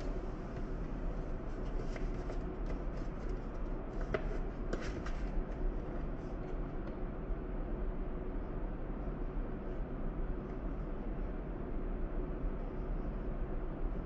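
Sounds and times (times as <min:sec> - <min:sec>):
low room hum: 0:00.0 - 0:14.0
paper labels rustling and tapping: 0:01.5 - 0:05.6.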